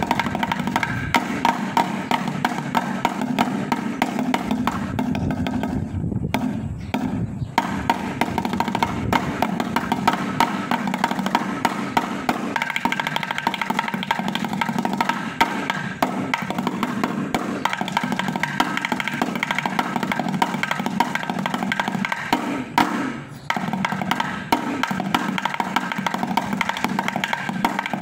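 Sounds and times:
drumsticks beating on metal cans: 7.6 - 28.0.

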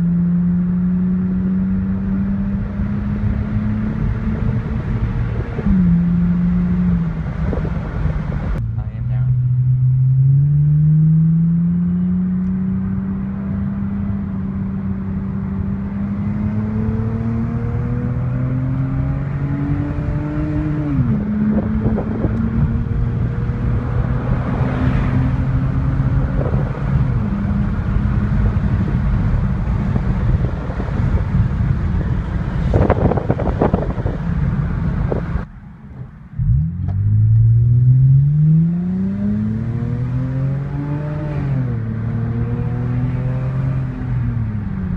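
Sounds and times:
engine revving under acceleration: 0.0 - 35.5, 36.4 - 44.9
car exhaust drone: 0.0 - 44.9.

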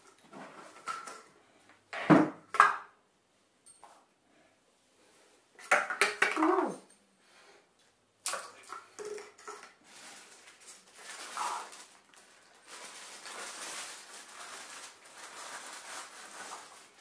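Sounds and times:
plastic cups clattering: 0.0 - 1.4, 5.6 - 6.8, 8.2 - 12.2.

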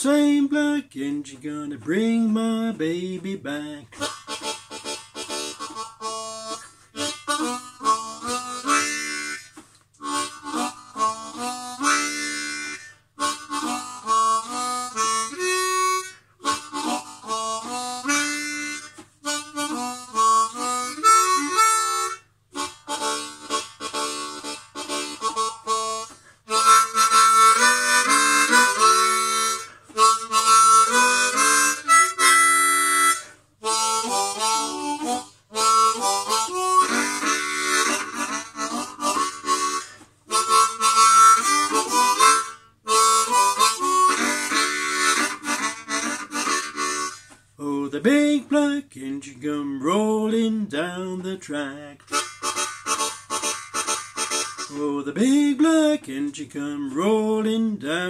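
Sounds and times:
blues harmonica: 0.0 - 58.0
short breaths: 6.6 - 7.0, 26.0 - 26.5, 29.6 - 30.0, 33.2 - 33.6.

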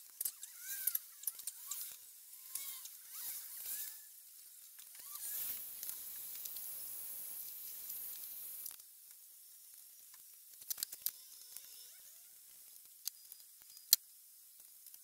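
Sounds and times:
heat gun blowing hot air: 5.0 - 8.7.

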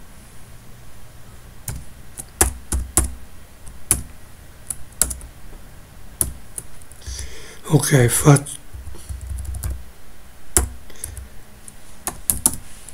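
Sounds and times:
typing on computer keyboard: 1.7 - 5.3, 9.0 - 9.8, 10.5 - 11.3, 12.0 - 12.6.

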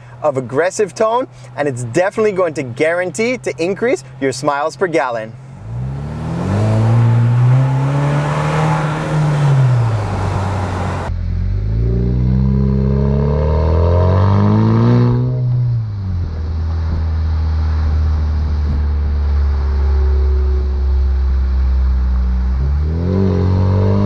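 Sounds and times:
car exhaust while driving: 5.3 - 24.0.

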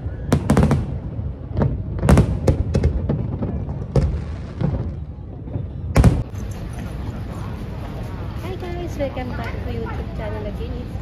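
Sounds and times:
fireworks bangs and crackles: 0.0 - 6.6.

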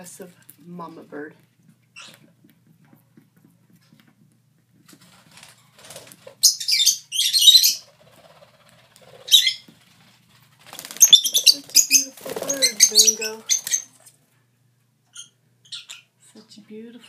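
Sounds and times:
bird ripping paper: 4.9 - 6.4, 8.2 - 11.1.

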